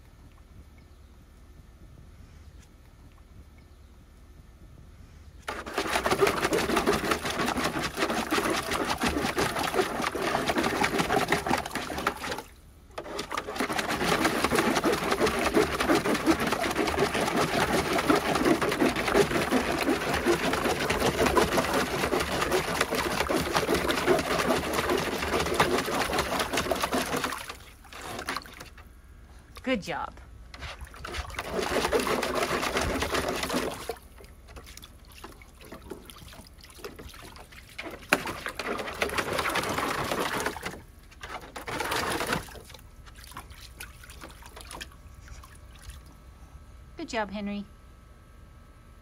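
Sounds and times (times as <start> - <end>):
dog digging in water splashing: 5.4 - 28.9, 30.5 - 46.1.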